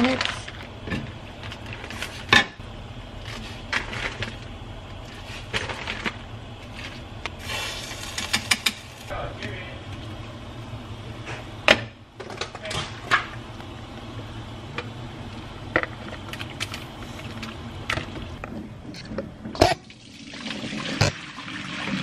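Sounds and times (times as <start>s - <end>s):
water boiling in a pan: 0.0s - 18.5s, 19.5s - 22.0s
hot water pouring into strainer: 19.9s - 22.0s.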